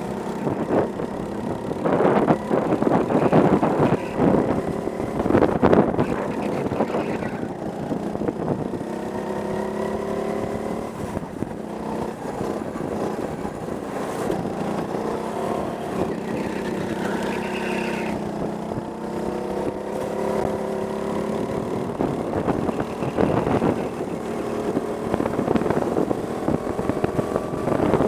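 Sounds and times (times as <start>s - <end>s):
go-kart engine running: 0.0s - 28.0s
wind buffeting microphone: 0.0s - 28.0s.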